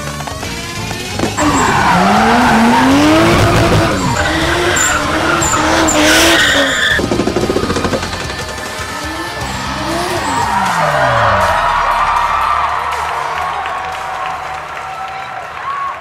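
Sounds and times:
car engines revving: 0.0 - 13.8
tyres squealing: 0.8 - 11.8.

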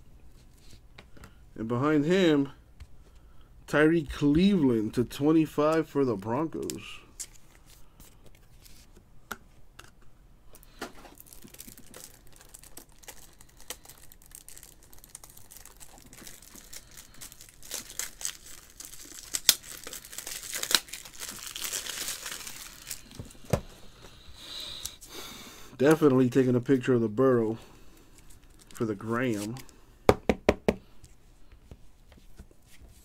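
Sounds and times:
plastic card sleeves crinkling: 10.6 - 23.6, 27.9 - 29.8.

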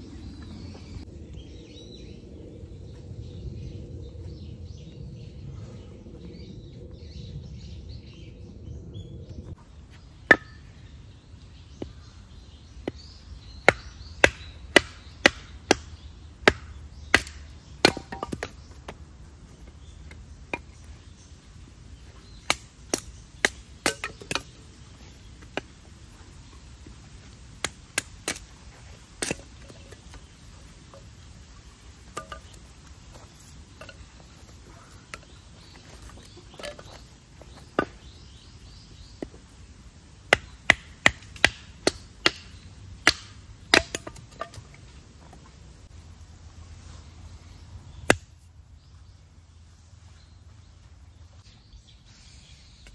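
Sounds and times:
hatchet chopping kindling: 13.6 - 19.0, 22.4 - 24.6, 29.2 - 30.0, 32.1 - 32.7, 40.3 - 44.7, 48.0 - 48.4.

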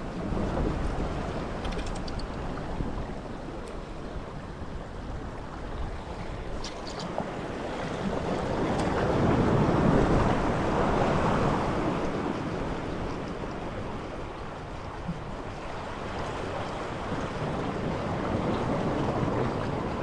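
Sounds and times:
surf washing against rocky shore: 0.0 - 20.0
faint clicks: 1.6 - 2.5.

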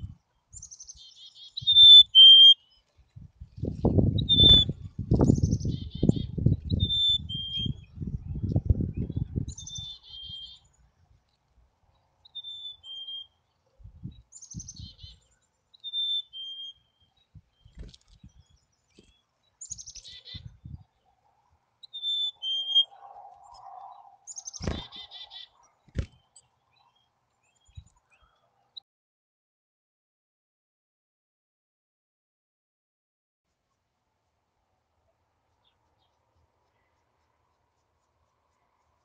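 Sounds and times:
chickadee whistled song: 0.6 - 2.8, 4.2 - 8.0, 9.0 - 10.6, 12.3 - 13.4, 15.8 - 16.9, 21.8 - 23.0.

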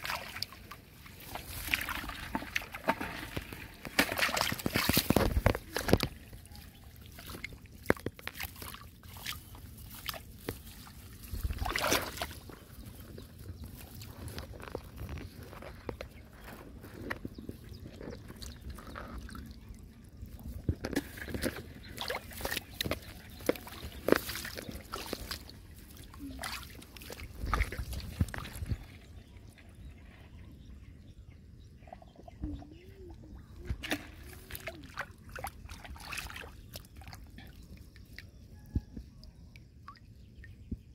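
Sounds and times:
water splashing: 0.0 - 15.1, 20.4 - 29.2, 33.6 - 37.6
muddy water sloshing: 0.0 - 30.4, 31.9 - 40.9.

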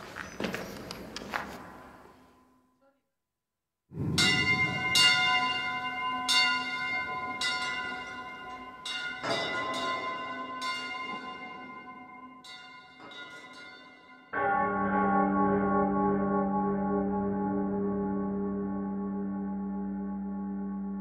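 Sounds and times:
bells ringing: 4.2 - 16.0.

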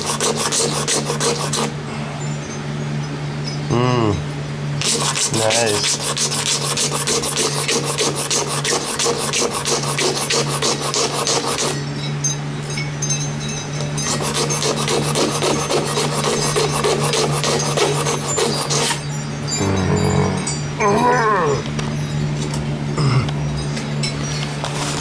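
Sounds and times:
hand sanding wood: 0.0 - 1.7, 4.8 - 11.8, 14.1 - 19.0.

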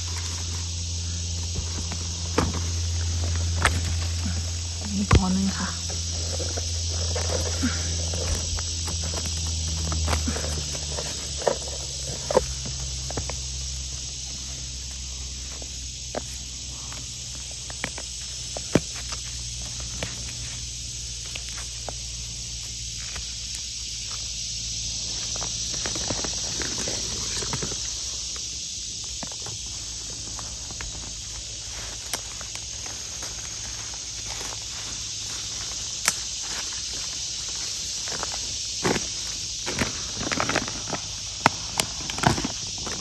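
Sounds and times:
twigs snapping and handling clicks: 0.0 - 15.0, 16.0 - 24.2, 31.7 - 37.1, 38.1 - 43.0
low hum: 0.0 - 36.1
high-pitched insect chorus: 0.0 - 43.0.

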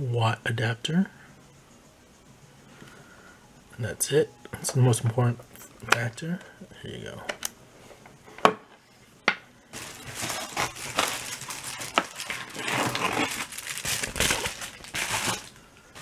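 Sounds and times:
bubble wrap crinkling: 9.7 - 16.0.

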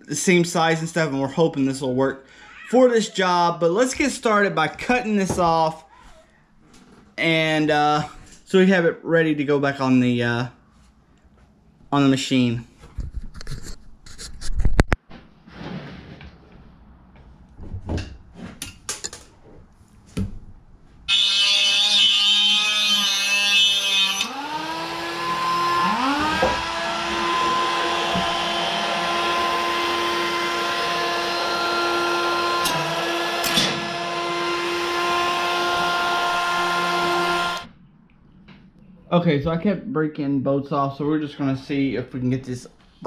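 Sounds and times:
rotary tool cutting metal: 21.1 - 37.7.

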